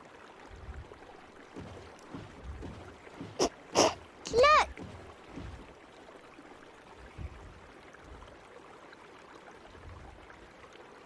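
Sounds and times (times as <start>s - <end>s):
soft low thump: 1.6s - 5.8s, 7.0s - 8.2s.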